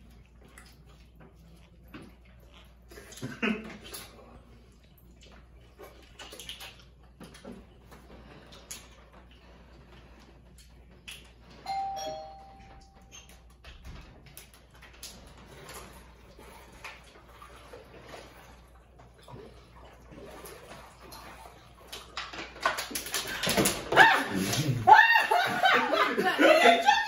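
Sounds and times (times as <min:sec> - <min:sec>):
two-note electronic chime: 0:11.7 - 0:13.1.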